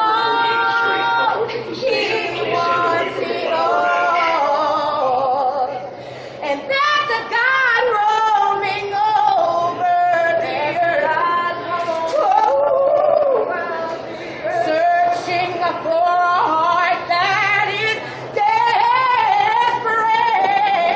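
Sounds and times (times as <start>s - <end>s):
woman singing unaccompanied: 0.0s - 5.8s, 6.4s - 20.9s.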